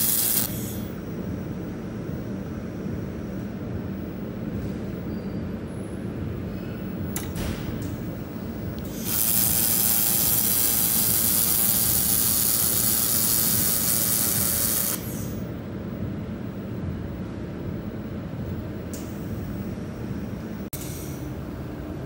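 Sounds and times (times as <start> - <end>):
laser welder hissing and buzzing: 0.0 - 1.0, 8.8 - 15.5
low machine hum: 0.0 - 22.0.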